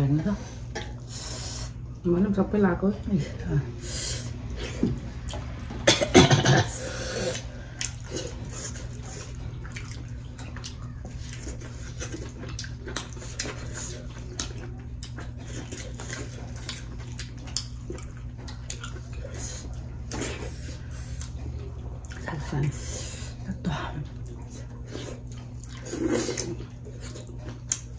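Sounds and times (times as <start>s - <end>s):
steady low hum: 0.0s - 27.9s
chewing and lip smacking: 7.3s - 23.0s, 24.0s - 27.9s.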